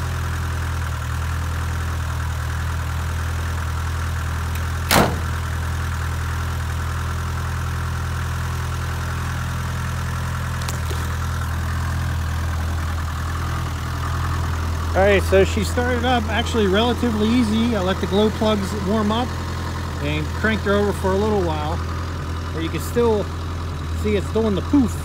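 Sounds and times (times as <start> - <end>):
diesel engine idling: 0.0 - 25.0
car door shutting: 4.6 - 5.6.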